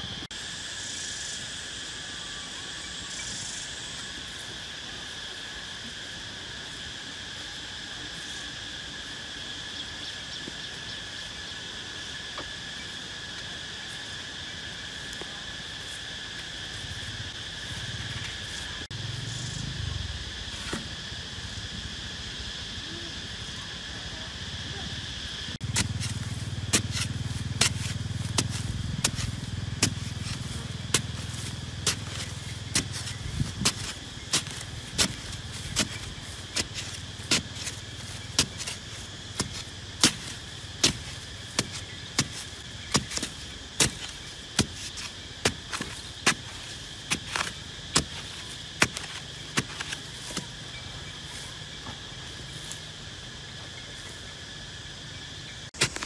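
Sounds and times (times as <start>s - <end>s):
digging pole striking hard soil: 25.6s - 50.5s, 55.8s - 56.0s.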